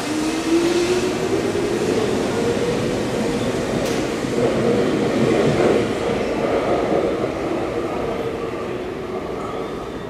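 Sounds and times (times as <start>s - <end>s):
train wheels rumbling and rattling: 0.0s - 8.5s.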